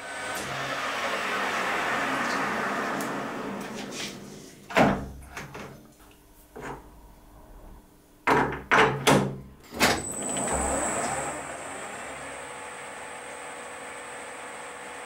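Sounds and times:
high whine of lathe: 0:00.0 - 0:04.2, 0:10.0 - 0:15.0
lathe running: 0:00.0 - 0:04.5, 0:10.0 - 0:15.0.

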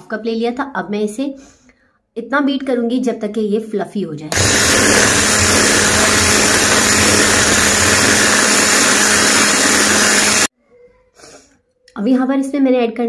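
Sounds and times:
electric hand mixer running: 0:04.3 - 0:10.5.

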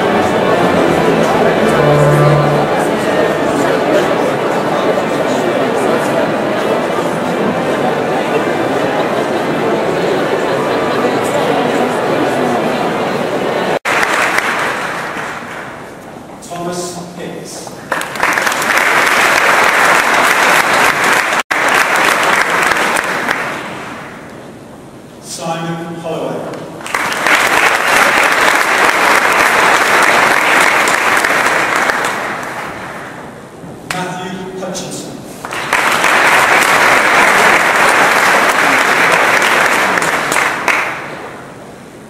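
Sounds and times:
audience applauding: 0:00.0 - 0:03.3, 0:13.9 - 0:15.9, 0:17.9 - 0:24.1, 0:26.8 - 0:33.2, 0:35.4 - 0:41.5.

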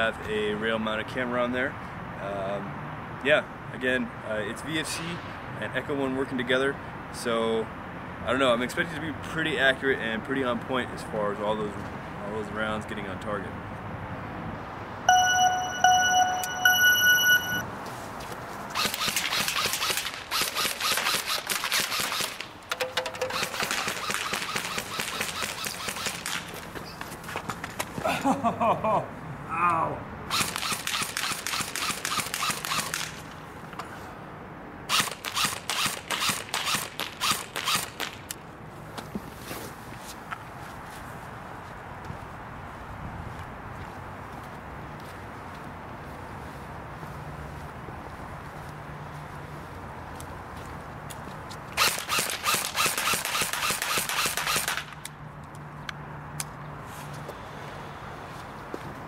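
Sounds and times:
airsoft rifle shots snapping: 0:18.8 - 0:26.4, 0:30.4 - 0:33.2, 0:51.8 - 0:55.1.

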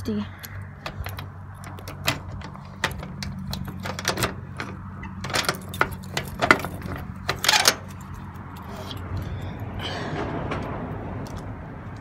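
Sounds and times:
keys and padlock clinking: 0:00.4 - 0:09.6.

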